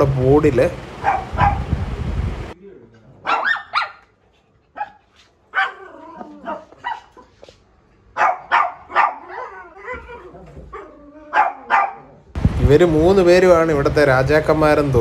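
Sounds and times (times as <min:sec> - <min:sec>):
small dogs barking: 0:01.0 - 0:01.7, 0:03.2 - 0:04.1, 0:04.7 - 0:07.5, 0:08.1 - 0:12.3.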